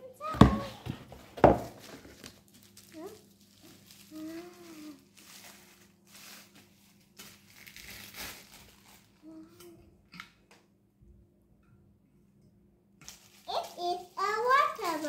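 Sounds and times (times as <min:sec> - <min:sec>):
plastic wrapping crinkling: 0:01.5 - 0:09.5, 0:13.0 - 0:15.0.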